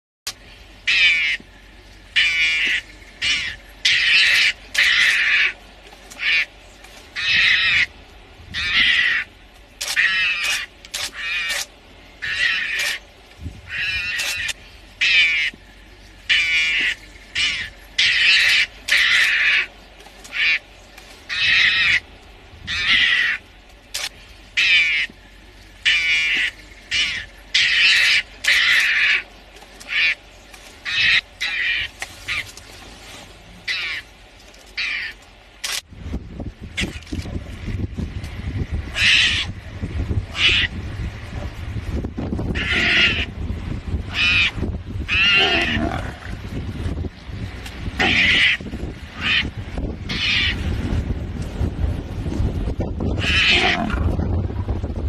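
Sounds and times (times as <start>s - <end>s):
mongoose chattering calls: 2.1s - 6.5s, 8.5s - 13.0s, 16.3s - 20.6s, 25.8s - 30.2s, 38.9s - 39.6s, 40.3s - 40.8s, 42.5s - 43.4s, 48.0s - 50.6s.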